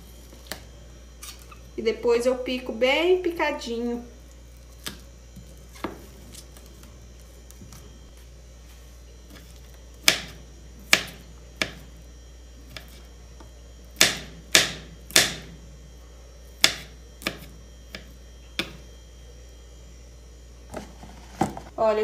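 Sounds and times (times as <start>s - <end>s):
knife chopping on cutting board: 9.3s - 11.9s, 14.0s - 15.5s, 16.6s - 18.8s.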